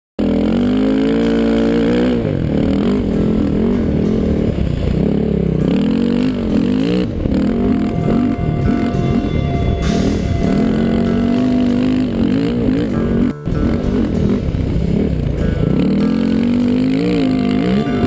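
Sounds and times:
dirt bike engine revving: 0:00.2 - 0:18.0.

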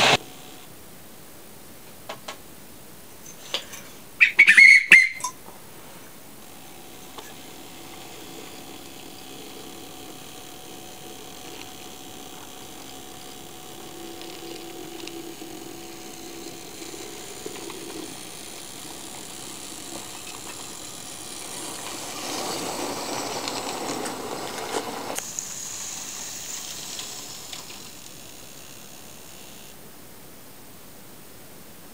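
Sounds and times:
model train motor humming: 0:00.0 - 0:00.7, 0:06.2 - 0:29.8
short shrill whistle: 0:04.2 - 0:05.4.

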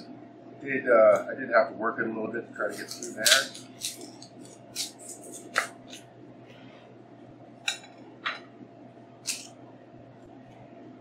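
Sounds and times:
faint steady hum: 0:00.0 - 0:11.0
knife cutting onion: 0:02.6 - 0:06.1, 0:09.2 - 0:09.5.

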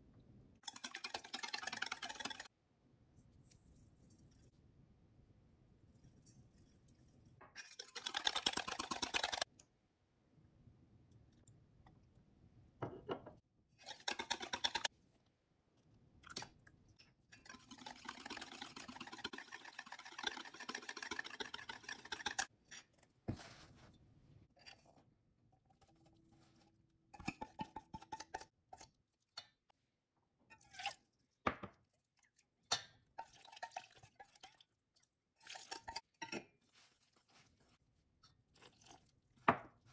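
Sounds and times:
whisk clicking in metal bowl: 0:00.6 - 0:02.5, 0:07.8 - 0:09.4, 0:13.9 - 0:14.9, 0:17.4 - 0:22.5.

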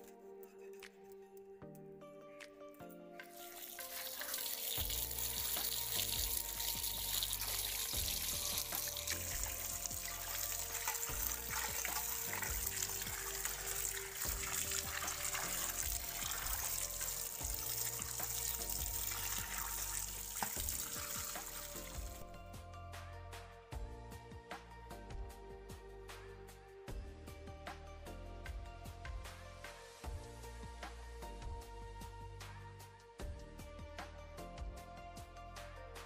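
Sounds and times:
background music: 0:00.0 - 0:36.0
running water splashing: 0:03.2 - 0:22.3.

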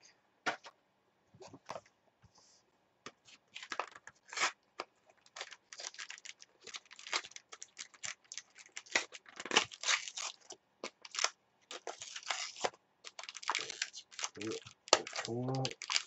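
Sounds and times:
cards being handled: 0:03.1 - 0:16.0
foil packs crinkling and tearing: 0:03.6 - 0:04.6, 0:05.2 - 0:16.0.

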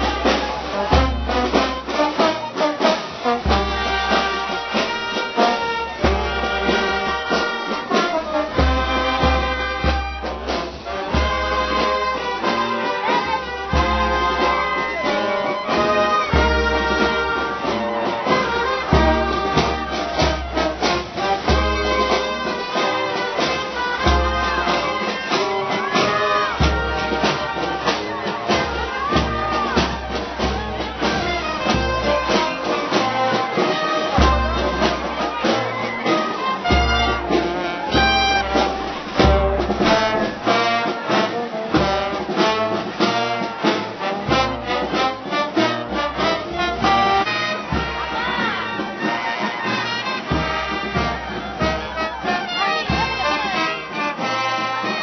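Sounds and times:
brass band playing a march: 0:00.0 - 0:55.0.

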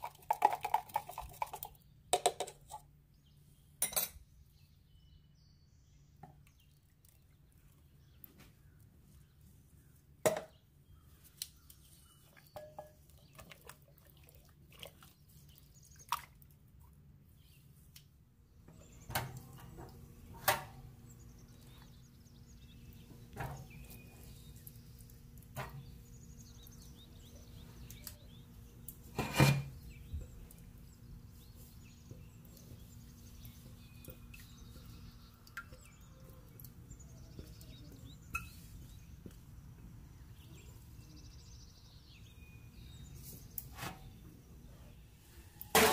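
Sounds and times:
kitchen utensils knocking and clicking: 0:02.2 - 0:02.8
faint bird chirps: 0:29.6 - 0:45.7.

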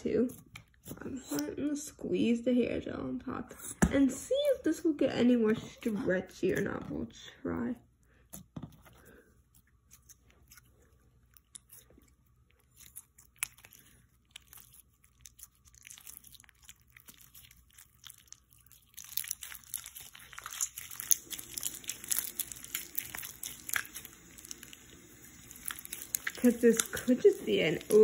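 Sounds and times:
slime squishing wet crackling: 0:08.3 - 0:28.0.

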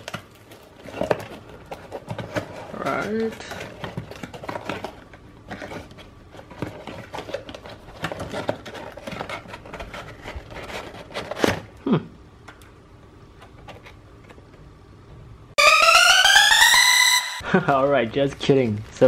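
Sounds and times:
loud electronic tone: 0:15.6 - 0:17.4.

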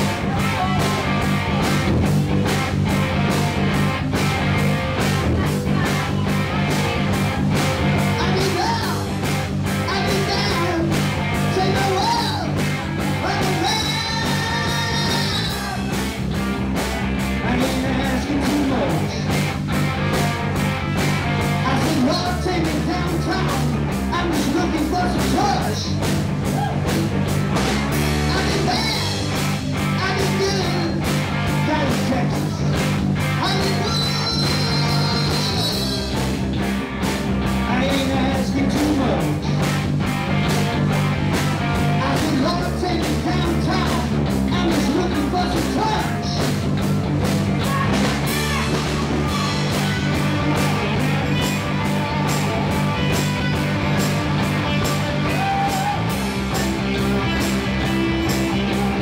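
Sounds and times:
rock band playing: 0:00.0 - 0:59.0
man singing: 0:05.0 - 0:06.7, 0:07.9 - 0:16.4, 0:17.3 - 0:19.5, 0:21.5 - 0:26.8, 0:28.2 - 0:36.4, 0:37.6 - 0:39.7, 0:41.8 - 0:46.6, 0:47.5 - 0:59.0.

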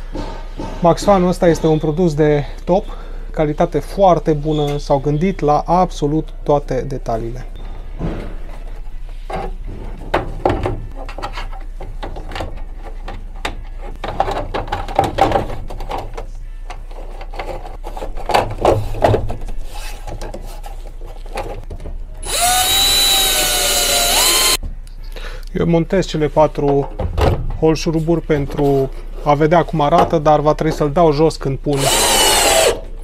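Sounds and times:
power drill whirring: 0:22.2 - 0:24.6, 0:31.7 - 0:32.8
screws and frame clicking: 0:22.2 - 0:24.6, 0:31.7 - 0:32.8.

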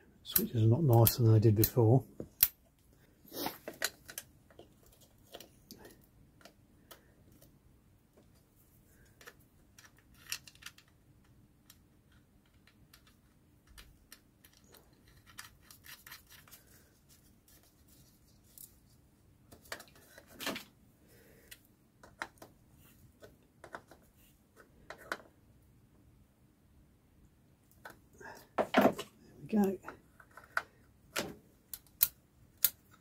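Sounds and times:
small clicks and scrapes: 0:02.4 - 0:07.6, 0:08.2 - 0:20.7, 0:21.3 - 0:25.4, 0:29.8 - 0:33.0.

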